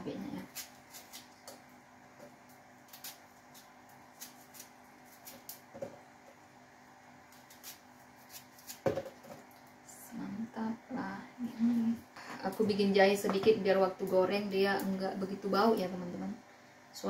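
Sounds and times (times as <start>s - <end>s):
faint steady hum: 0.0s - 17.0s
knife peeling a shallot: 0.4s - 1.7s, 2.4s - 5.7s, 7.3s - 8.9s.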